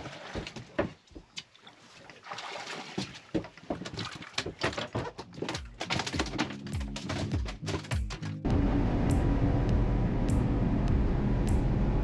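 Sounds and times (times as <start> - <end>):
water noise: 0.0 - 4.7
wind: 0.0 - 5.4
sharp knocks and clicks: 3.4 - 8.5.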